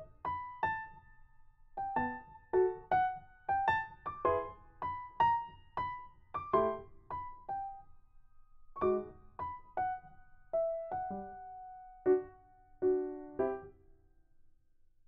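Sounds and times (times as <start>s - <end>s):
gentle piano notes: 1.8s - 7.8s, 8.8s - 13.8s.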